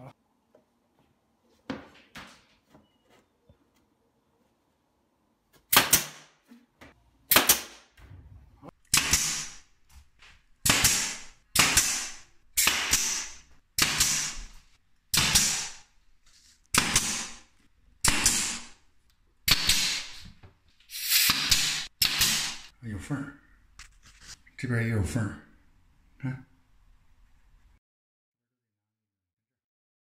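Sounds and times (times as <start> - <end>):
brad nailer firing: 5.7 - 6.4, 7.3 - 8.0, 8.9 - 9.7, 10.6 - 15.8, 16.7 - 18.8, 19.5 - 20.2, 21.2 - 22.7.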